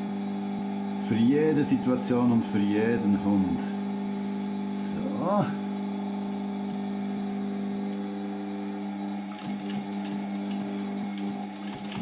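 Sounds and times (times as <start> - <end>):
sewing machine motor humming: 8.8 - 12.0.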